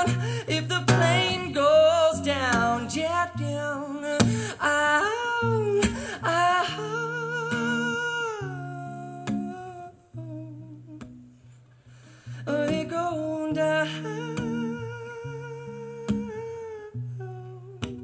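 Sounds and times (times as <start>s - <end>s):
acoustic guitar: 0.0s - 18.0s.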